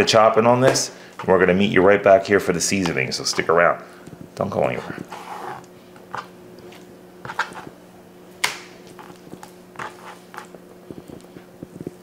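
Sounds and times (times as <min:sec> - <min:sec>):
faint steady hum: 0:00.0 - 0:12.0
knife cutting on plastic board: 0:05.0 - 0:06.3, 0:07.2 - 0:07.7, 0:09.8 - 0:10.5.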